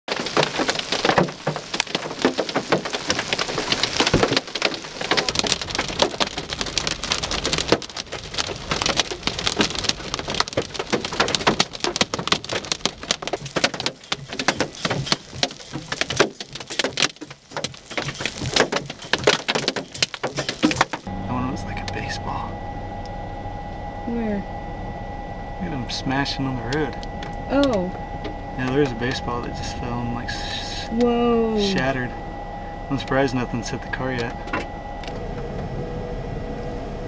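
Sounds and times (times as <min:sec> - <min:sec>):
hailstones rattling: 0:00.1 - 0:21.1
heavy rain: 0:00.1 - 0:22.4, 0:28.6 - 0:32.1, 0:32.9 - 0:34.4.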